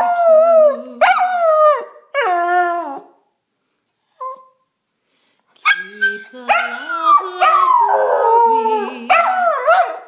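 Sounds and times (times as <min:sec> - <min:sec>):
dog howling: 0:06.6 - 0:10.0.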